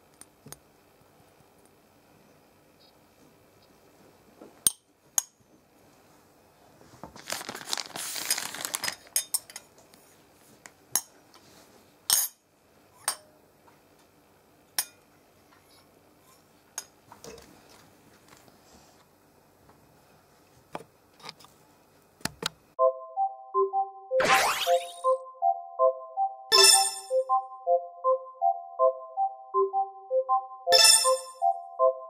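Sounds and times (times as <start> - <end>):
plastic crinkling and rustling: 6.8 - 9.2.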